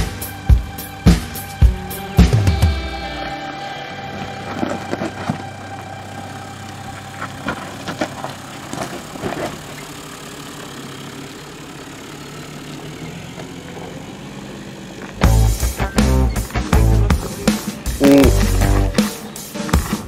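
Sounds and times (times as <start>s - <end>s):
car engine running low: 3.9s - 20.0s
stones crunching under tyres: 4.1s - 11.0s.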